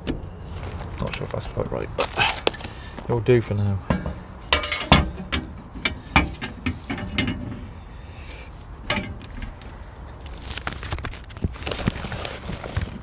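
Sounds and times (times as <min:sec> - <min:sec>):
metal chimney clicks and knocks: 0:03.8 - 0:07.7, 0:08.8 - 0:09.6.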